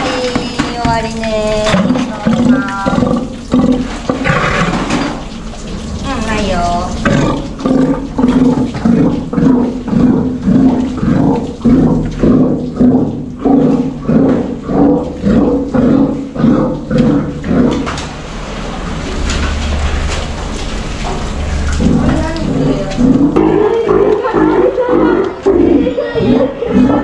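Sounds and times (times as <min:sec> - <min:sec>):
sea lion roaring: 0:00.0 - 0:27.0.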